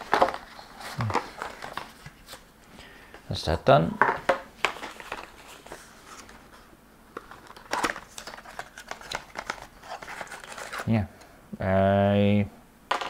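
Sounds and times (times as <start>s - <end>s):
cardboard box rustling: 7.2s - 10.9s.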